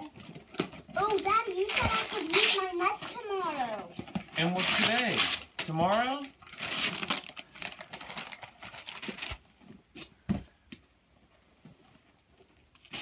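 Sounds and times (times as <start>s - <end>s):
wrapping paper crinkling and tearing: 0.0s - 9.4s, 12.7s - 13.0s.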